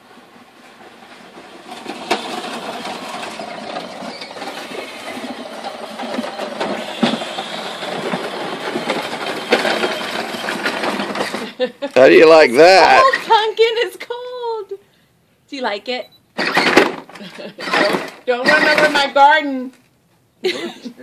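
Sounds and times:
toy buggy motors and wheels: 1.0s - 12.9s, 16.4s - 19.1s.

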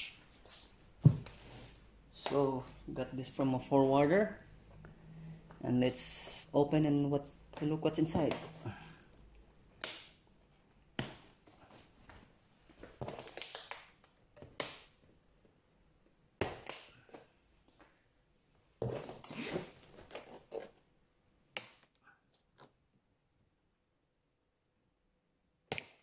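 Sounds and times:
packing tape crackling and scraping: 18.9s - 20.8s.

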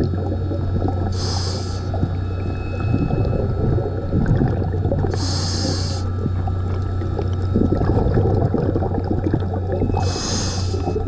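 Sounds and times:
bubbles gurgling: 0.0s - 11.0s
steady low hum: 0.0s - 11.0s
regulator inhale hiss: 1.1s - 2.0s, 5.1s - 6.2s, 10.0s - 11.0s.

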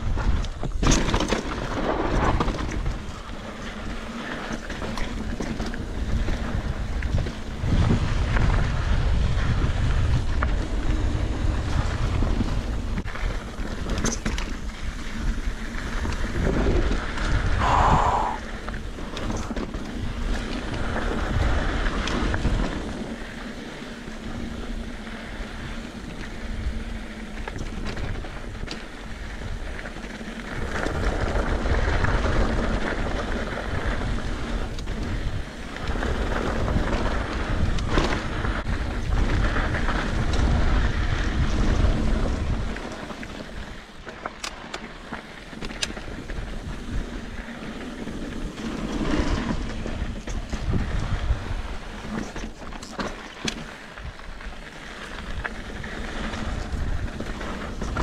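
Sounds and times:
wind buffeting microphone: 0.0s - 0.9s, 1.6s - 23.4s, 25.6s - 43.8s, 45.8s - 52.7s, 54.0s - 58.0s
bike clicks and clatters: 0.0s - 17.8s, 18.4s - 58.0s
bike tyre rumble: 0.0s - 58.0s.

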